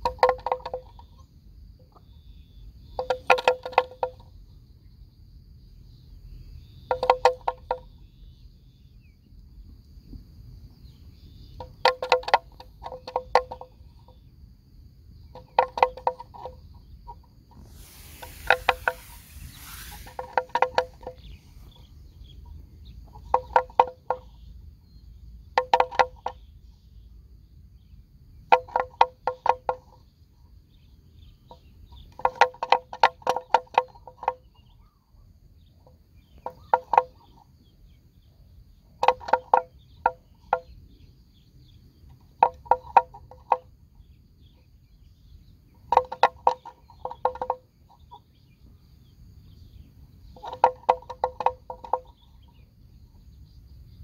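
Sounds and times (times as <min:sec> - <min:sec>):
buffalo tearing and chewing grass: 0:17.6 - 0:21.0.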